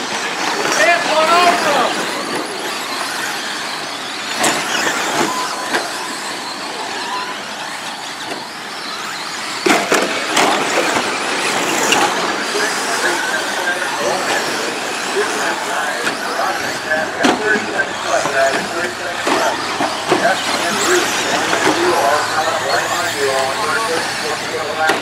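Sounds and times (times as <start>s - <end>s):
rc truck motors whining: 0.0s - 25.0s
tyres churning on dirt: 0.0s - 25.0s.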